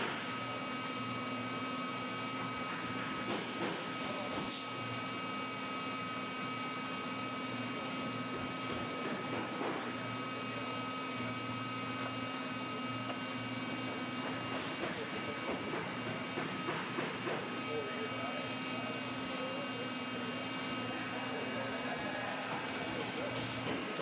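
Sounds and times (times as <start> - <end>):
plastic welder blower humming: 0.0 - 24.0.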